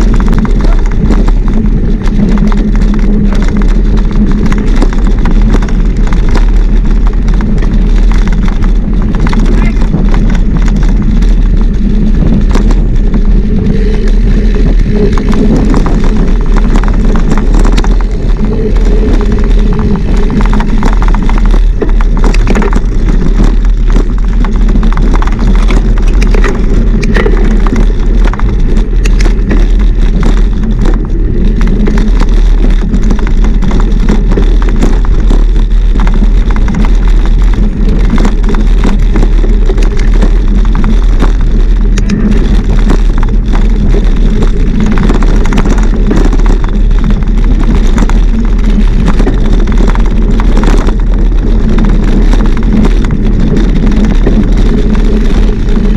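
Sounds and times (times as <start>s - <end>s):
bike rattles and knocks: 0.0s - 55.9s
wind buffeting microphone: 0.0s - 55.9s.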